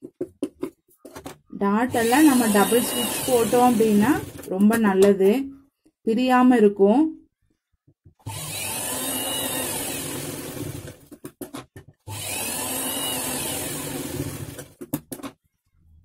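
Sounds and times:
sewing machine stitching: 1.9 - 4.8, 8.2 - 11.2, 12.0 - 15.0.

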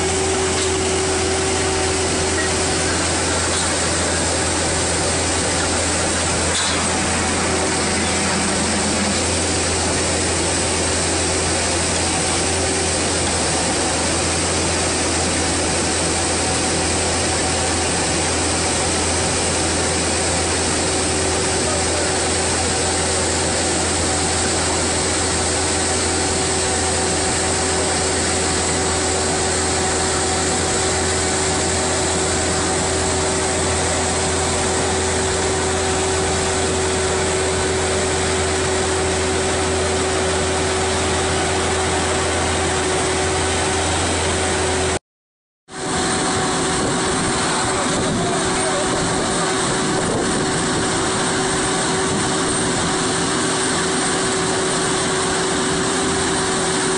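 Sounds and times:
constant hum: 0.0 - 45.0, 45.8 - 56.9
diesel engine running steadily: 0.0 - 45.0, 45.7 - 56.9.

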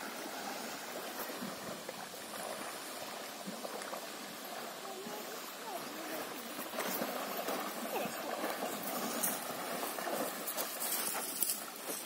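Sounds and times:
horse wading through water: 0.0 - 12.0.

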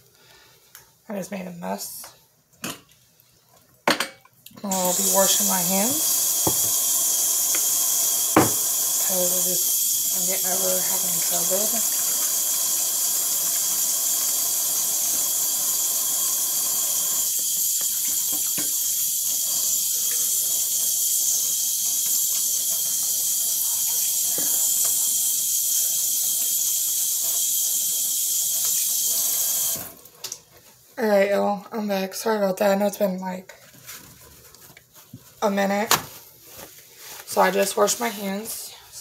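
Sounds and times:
faucet running into sink: 4.7 - 30.0.

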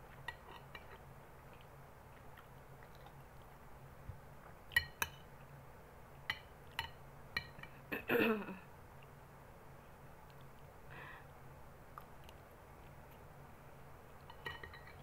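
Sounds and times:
metal spoon clinking on glass bowl: 14.3 - 15.0.

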